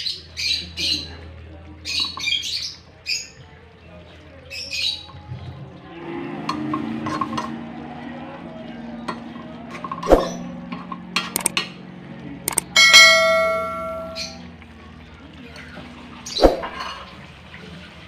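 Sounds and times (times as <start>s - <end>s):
spoon stirring and tapping pot: 10.7s - 11.7s, 12.5s - 14.0s
bell chime: 12.5s - 14.4s.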